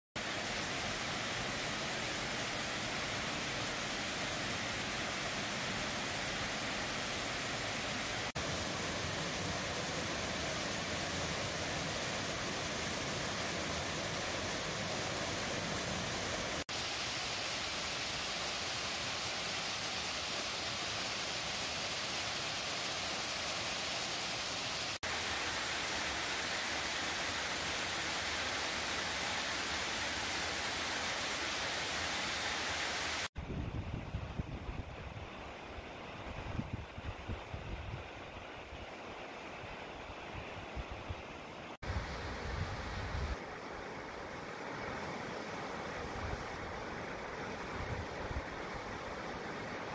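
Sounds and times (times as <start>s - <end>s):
waterfall rushing: 0.2s - 33.3s.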